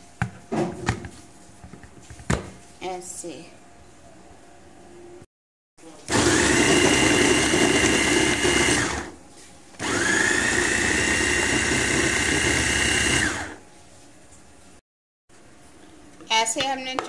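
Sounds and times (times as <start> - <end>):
electric food chopper whining: 6.1 - 9.2, 9.8 - 13.6.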